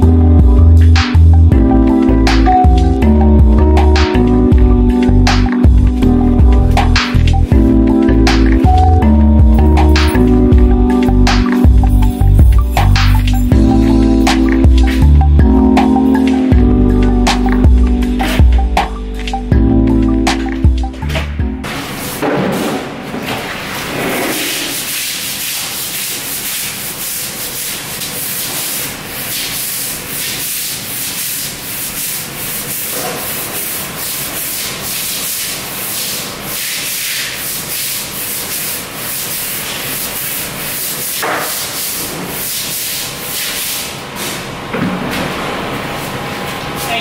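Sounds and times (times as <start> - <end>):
mop scrubbing hard floor: 21.6 - 47.0.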